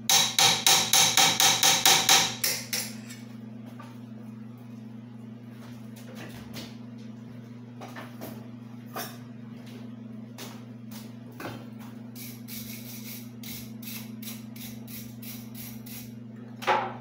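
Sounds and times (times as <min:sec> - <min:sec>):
low electrical hum: 0:00.0 - 0:17.0
hammer striking metal: 0:00.1 - 0:03.2.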